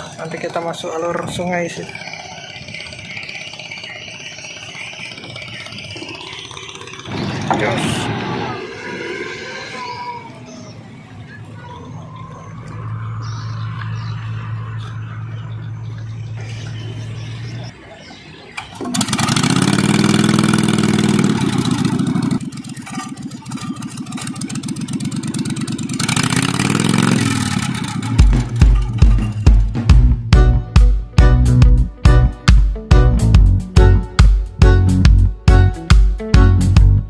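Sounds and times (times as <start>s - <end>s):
boat engine starting and revving: 1.0s - 9.6s, 12.3s - 30.0s
low engine hum: 1.9s - 17.9s.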